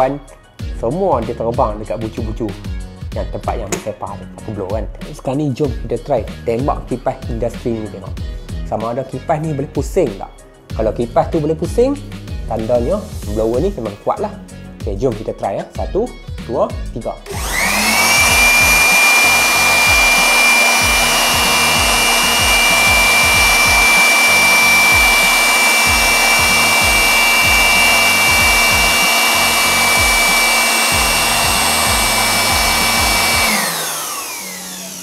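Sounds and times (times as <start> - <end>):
electric blower whining: 17.2 - 35.0.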